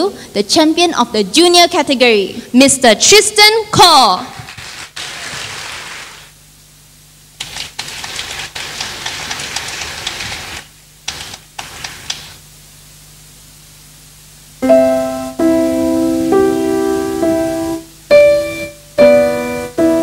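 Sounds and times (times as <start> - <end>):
faint room hum: 0.0 - 20.0
audience clapping: 4.5 - 6.3, 7.4 - 12.4.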